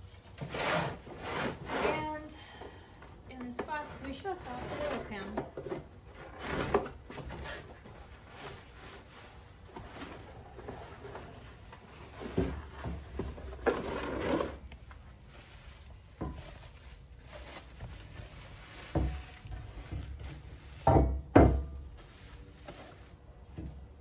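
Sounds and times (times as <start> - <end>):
plastic wrapping rustling: 3.4 - 21.1, 21.8 - 23.2
knocks on wooden workbench: 20.8 - 21.8.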